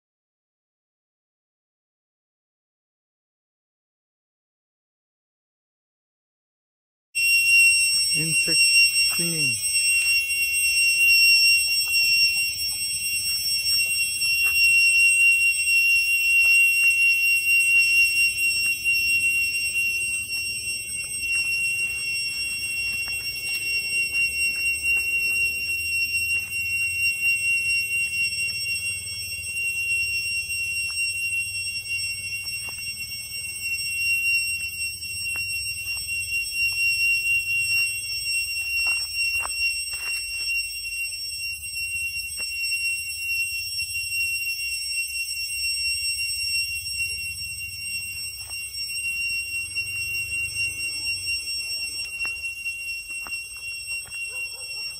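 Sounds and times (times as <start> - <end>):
cicadas droning: 7.2 - 41.2, 46.4 - 54.9.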